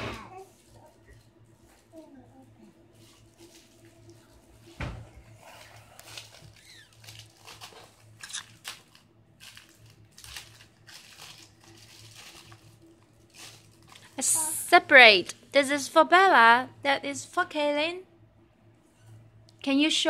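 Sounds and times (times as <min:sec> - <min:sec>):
plastic packet crinkling: 0:05.6 - 0:14.3.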